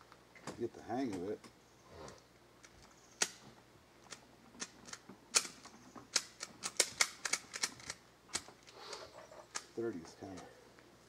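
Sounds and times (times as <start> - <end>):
cartridges clicking into magazine: 4.1 - 8.5.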